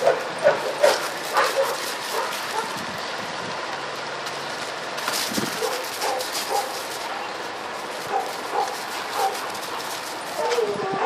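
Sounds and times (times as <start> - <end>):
dog barking: 0.0 - 2.8, 5.6 - 6.8, 8.0 - 9.5, 10.4 - 11.0
outdoor background noise: 0.0 - 11.0.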